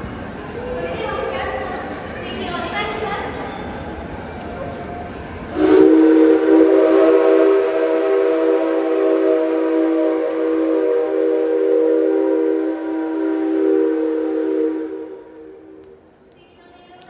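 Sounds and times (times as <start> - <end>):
steam locomotive whistle blast: 5.5 - 15.7.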